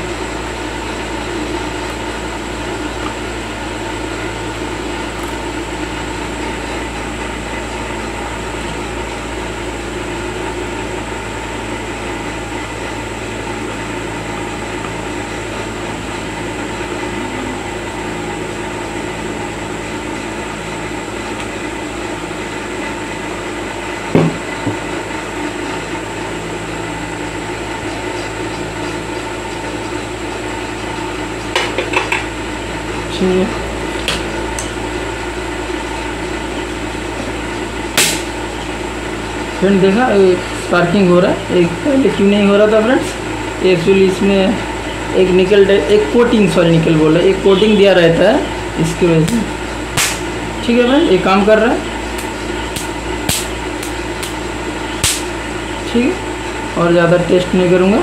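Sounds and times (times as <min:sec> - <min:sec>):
welding machine humming: 0:00.0 - 0:58.0
sharp crack: 0:38.0 - 0:38.4, 0:49.3 - 0:50.4, 0:52.2 - 0:54.4, 0:55.0 - 0:55.4.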